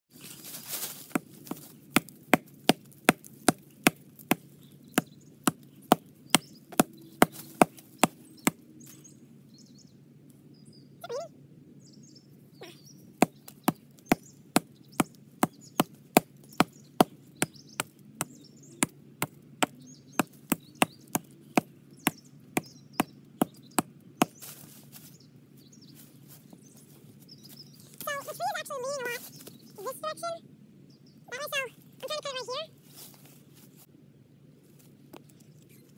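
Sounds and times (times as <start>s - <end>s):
hatchet chopping wood: 1.1s - 8.6s, 13.2s - 24.4s.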